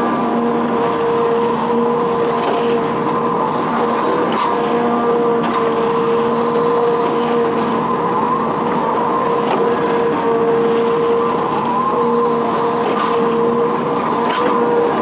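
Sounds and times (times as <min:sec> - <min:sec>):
diesel engine drone: 0:00.0 - 0:15.0
hydraulic whine: 0:00.0 - 0:15.0.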